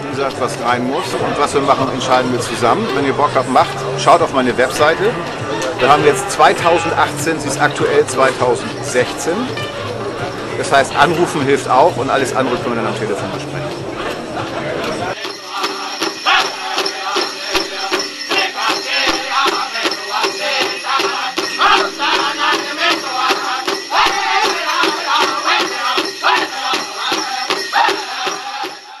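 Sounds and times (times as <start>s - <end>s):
group singing: 13.8s - 29.0s
jingling bells: 14.9s - 29.0s
fast steady drum beat: 15.1s - 29.0s.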